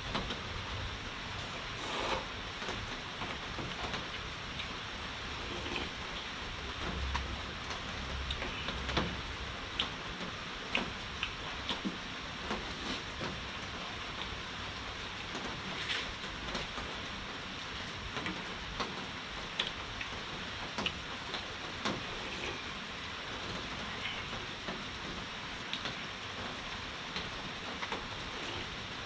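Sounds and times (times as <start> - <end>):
heavy rain falling: 0.0 - 29.0
sharp clicks and drips: 3.6 - 4.8, 6.1 - 12.6, 18.2 - 22.0.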